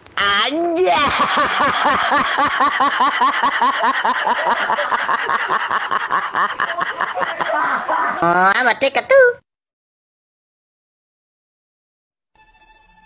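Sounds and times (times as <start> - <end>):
person laughing hard: 0.7 - 8.5.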